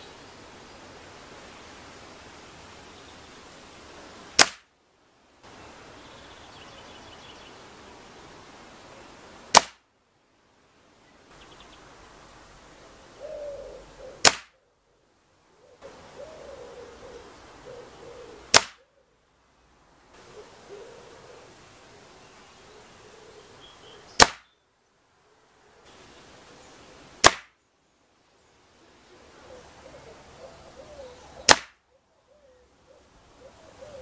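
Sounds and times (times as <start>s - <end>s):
air rifle shots: 4.4s - 4.7s, 9.5s - 9.8s, 14.2s - 14.5s, 18.5s - 18.8s, 24.2s - 24.5s, 27.2s - 27.5s, 31.5s - 31.8s.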